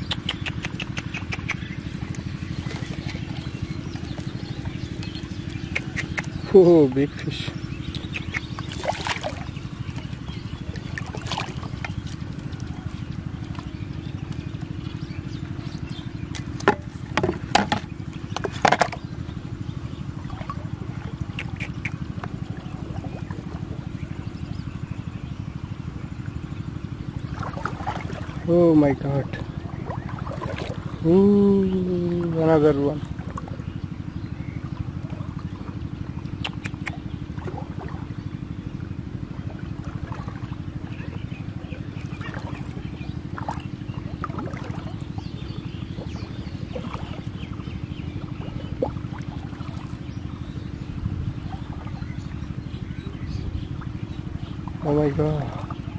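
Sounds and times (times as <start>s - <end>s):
motor engine chugging: 0.0s - 55.9s
splashes and knocks in water: 8.3s - 14.7s, 16.0s - 19.3s, 20.0s - 23.9s, 27.1s - 31.0s, 34.7s - 38.3s, 39.2s - 50.4s, 54.5s - 55.9s.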